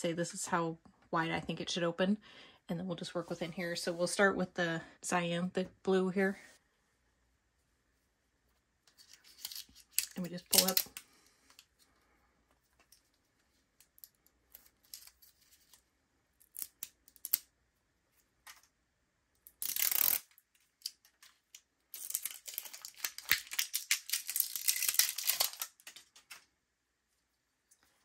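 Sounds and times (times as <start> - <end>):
plastic wrapping crinkling: 9.0 - 11.0, 20.7 - 26.4
plastic tearing rip: 19.6 - 21.0, 22.0 - 26.4.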